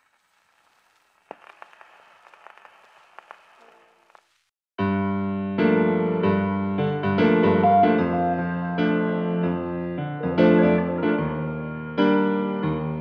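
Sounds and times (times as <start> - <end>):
faint hiss: 0.0 - 4.5
piano playing sustained chords: 4.9 - 13.0.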